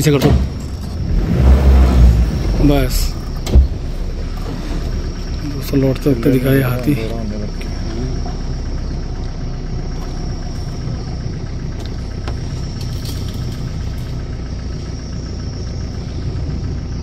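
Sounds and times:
insect drone: 0.0 - 17.0
vehicle engine idling: 0.0 - 17.0.

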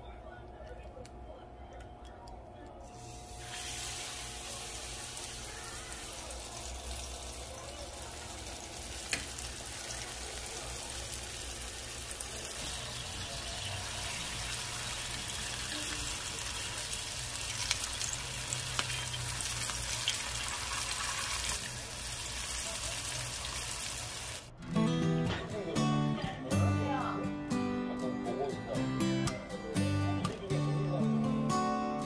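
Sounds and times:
food deep-frying in hot oil: 3.0 - 24.5
sharp oil crackles: 3.2 - 24.5.

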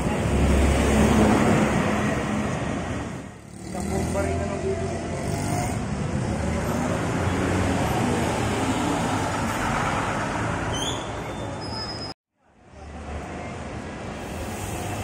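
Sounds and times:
bus diesel engine passing: 0.0 - 11.7
street traffic: 0.0 - 15.0.

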